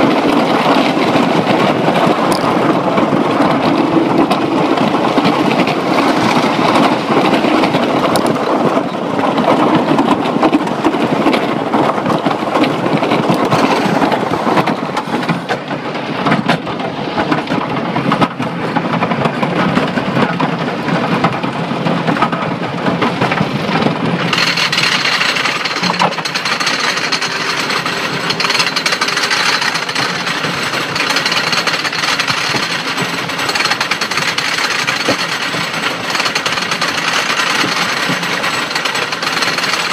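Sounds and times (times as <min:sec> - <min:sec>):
roller coaster train rattling: 0:00.0 - 0:39.9
chain lift clanking: 0:24.2 - 0:39.9.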